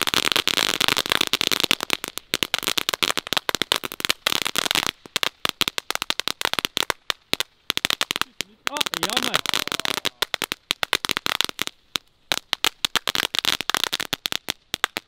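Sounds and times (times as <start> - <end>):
firework crackling: 0.0 - 15.0.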